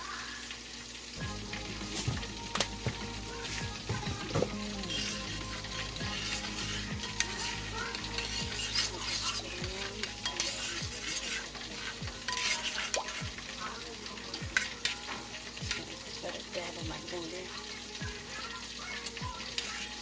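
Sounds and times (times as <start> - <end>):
spoon stirring and scraping sauce: 1.8 - 16.0, 19.1 - 20.0.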